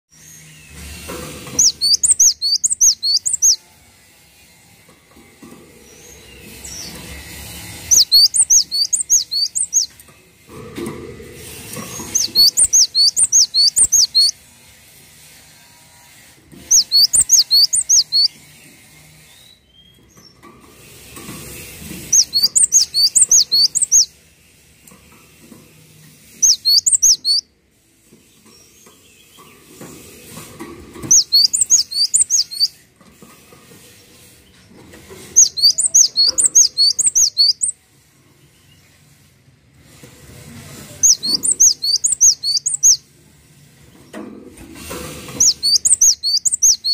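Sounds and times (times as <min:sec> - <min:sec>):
bird singing high whistled notes: 0:01.5 - 0:03.6, 0:07.8 - 0:10.0, 0:12.1 - 0:14.4, 0:16.7 - 0:18.4, 0:22.1 - 0:24.1, 0:26.4 - 0:27.5, 0:31.1 - 0:32.8, 0:35.4 - 0:37.8, 0:41.0 - 0:43.0, 0:45.4 - 0:46.9.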